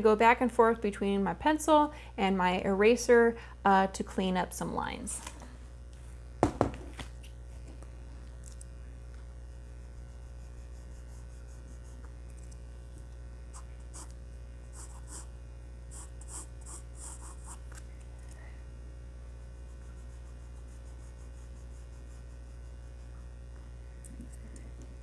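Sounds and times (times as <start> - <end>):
steady low hum: 0.0 - 25.0
drawing board knock: 6.4 - 6.9
pencil scratching on paper: 10.2 - 12.0, 13.5 - 14.1, 14.7 - 15.3, 15.9 - 17.6, 19.6 - 23.2.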